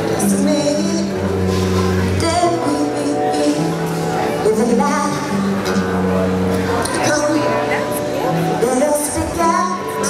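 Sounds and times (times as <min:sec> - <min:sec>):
bass notes: 0:00.0 - 0:10.0
keyboard chords: 0:00.0 - 0:10.0
woman singing: 0:02.1 - 0:03.8, 0:04.4 - 0:05.5, 0:06.9 - 0:10.0.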